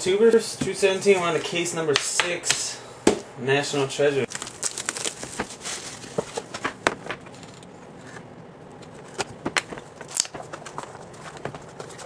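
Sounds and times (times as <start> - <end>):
plastic shrink wrap crinkling: 4.3 - 7.6.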